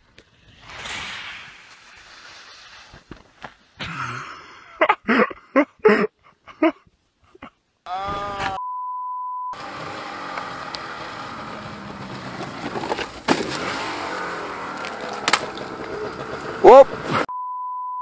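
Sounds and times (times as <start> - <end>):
person crying out: 7.9 - 8.6
steady beep: 8.6 - 9.6, 17.3 - 18.0
snowmobile engine running: 9.6 - 17.2
sled thumping into snow: 12.4 - 14.1.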